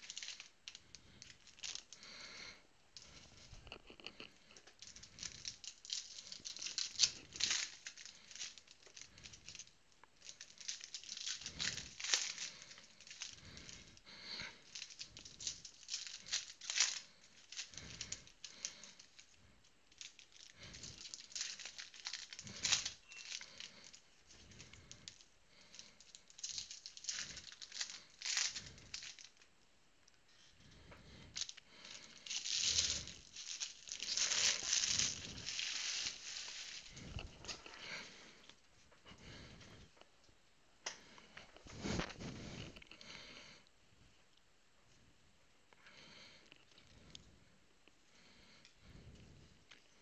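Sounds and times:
wrappers torn open and crinkled: 0.0s - 2.1s, 4.6s - 19.3s, 19.9s - 29.5s, 31.3s - 37.8s.

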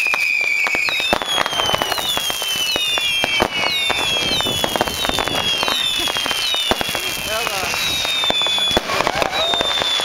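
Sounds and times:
fireworks cracks and bangs: 0.0s - 10.0s
fireworks whistles falling in pitch: 0.0s - 10.0s.

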